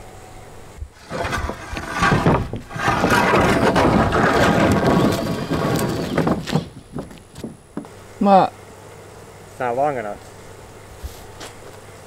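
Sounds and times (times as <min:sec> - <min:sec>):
wooden board scraping metal roof: 0:01.0 - 0:07.6.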